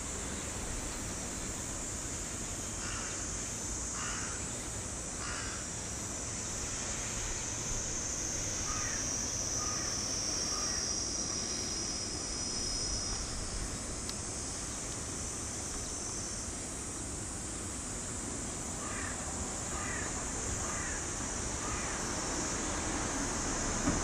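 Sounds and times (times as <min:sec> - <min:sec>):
high-pitched hiss: 0:00.0 - 0:24.0
crows cawing: 0:02.8 - 0:03.2, 0:04.0 - 0:04.4, 0:05.2 - 0:05.6, 0:08.7 - 0:09.0, 0:09.6 - 0:09.9, 0:18.8 - 0:21.0, 0:21.6 - 0:22.0.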